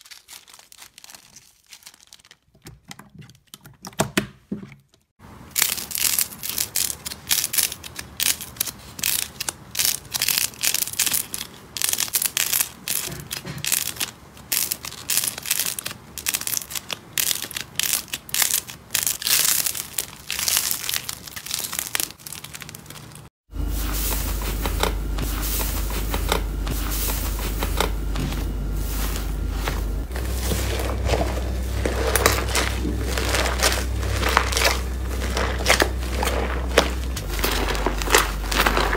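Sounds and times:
slime crackling and popping: 5.5s - 23.3s, 30.1s - 38.9s
steady low hum: 23.5s - 38.9s.

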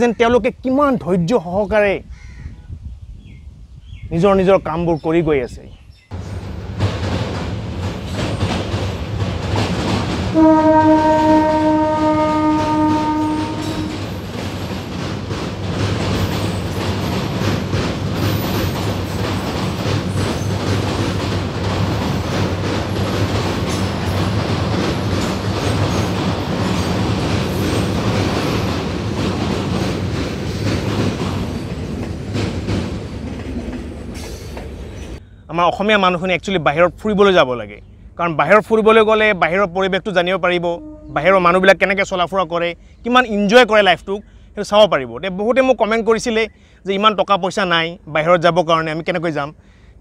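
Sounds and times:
train wheels clattering on bridge: 6.1s - 35.2s
locomotive horn blast: 10.3s - 14.2s, 40.7s - 41.6s.

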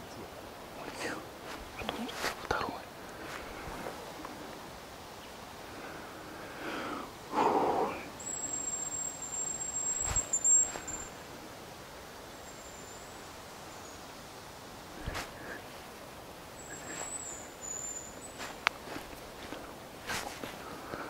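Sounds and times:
rustle: 0.0s - 21.0s
high thin grouse whistle: 8.2s - 11.2s.

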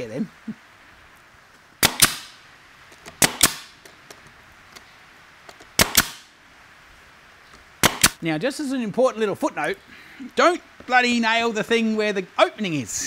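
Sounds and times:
nail gun firing: 1.8s - 2.4s, 3.1s - 3.8s, 5.8s - 6.3s, 7.8s - 8.2s.

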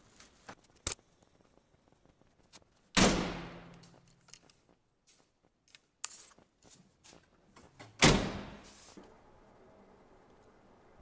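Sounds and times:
van door slamming with echo: 3.0s - 3.7s, 8.0s - 8.6s.

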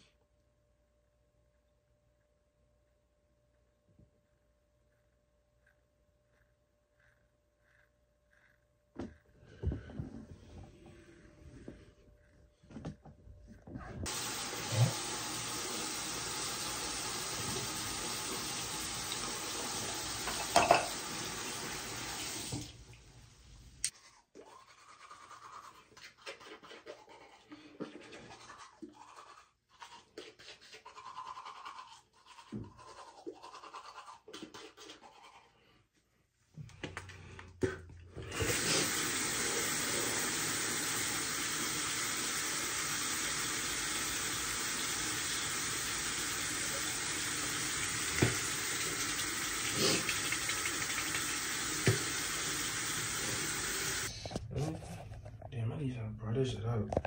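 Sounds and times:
rushing hiss like water: 14.1s - 22.8s, 38.4s - 54.1s.

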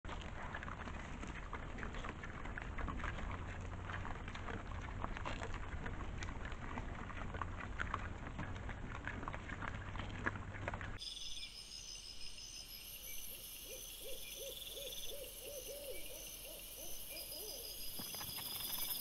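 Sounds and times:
boars crunching and chewing: 0.1s - 11.0s.

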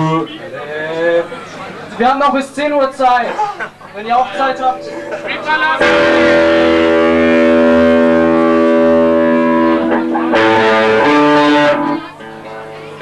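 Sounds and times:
electric guitar chords: 4.2s - 13.0s.

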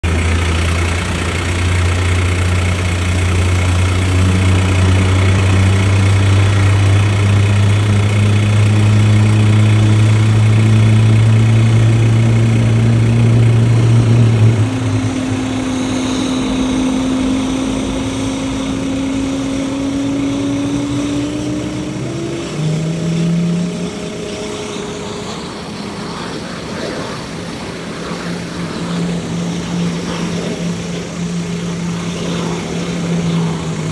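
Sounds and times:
jet engines droning: 0.0s - 33.9s
rising engine tones: 0.0s - 33.9s.

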